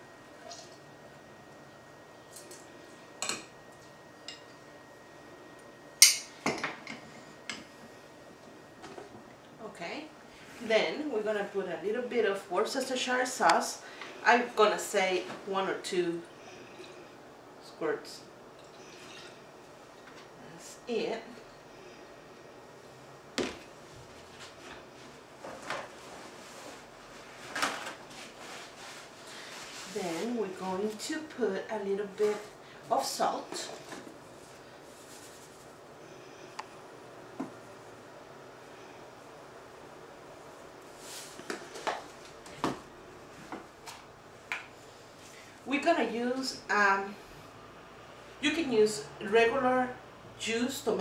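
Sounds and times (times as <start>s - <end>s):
faint handling sounds: 32.0s - 35.9s.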